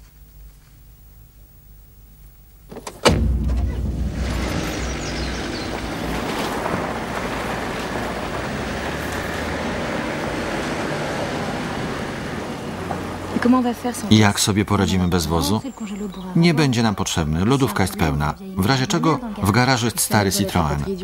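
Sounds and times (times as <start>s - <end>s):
sharp knock: 3.0s - 6.7s
car engine driving: 3.0s - 15.4s
road noise: 3.1s - 21.0s.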